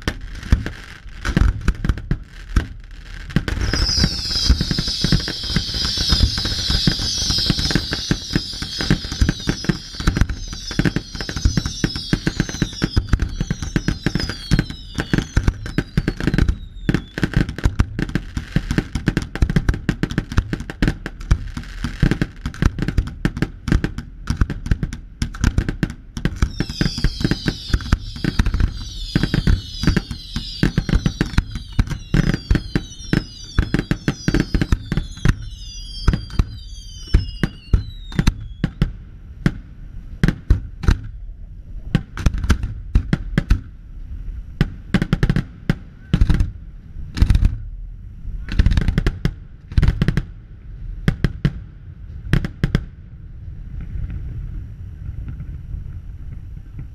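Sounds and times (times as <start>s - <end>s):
loud firework bangs: 3.3s - 17.6s
firework shell bursts: 3.4s - 17.4s
firework whistles falling in pitch: 3.4s - 18.6s, 26.3s - 39.0s.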